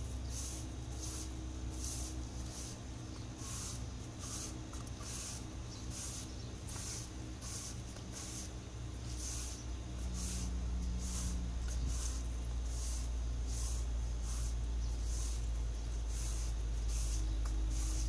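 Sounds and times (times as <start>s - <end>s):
broom sweeping tiled floor: 0.0s - 18.0s.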